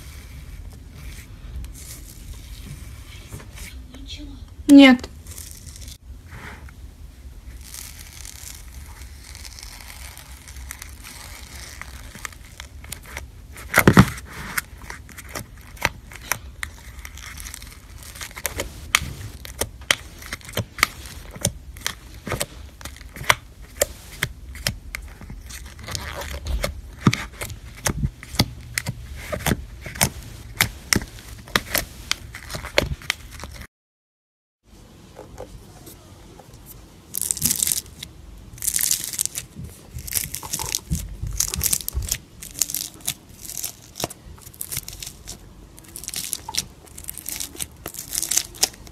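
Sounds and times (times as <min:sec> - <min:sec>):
slime popping and crackling: 0:07.5 - 0:14.2, 0:14.8 - 0:33.6, 0:37.1 - 0:48.9.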